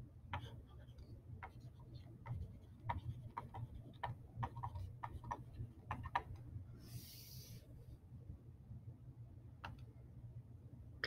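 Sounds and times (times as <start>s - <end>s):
stylus tapping pen tablet: 0.4s - 0.6s, 1.4s - 6.5s
short hiss: 6.8s - 7.6s.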